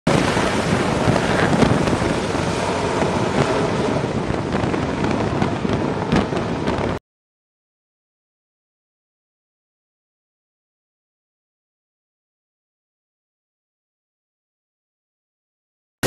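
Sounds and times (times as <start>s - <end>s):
jet engines at full power: 0.1s - 7.0s.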